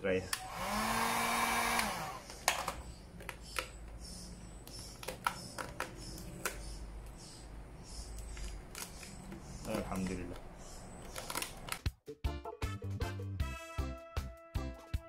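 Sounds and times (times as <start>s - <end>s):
heat gun motor hum: 0.3s - 2.8s
vinyl film crackling: 8.2s - 11.9s.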